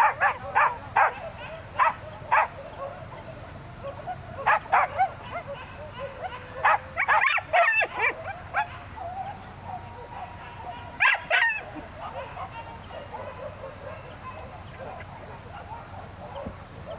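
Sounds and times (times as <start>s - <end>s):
dogs barking and yelping: 0.0s - 16.9s.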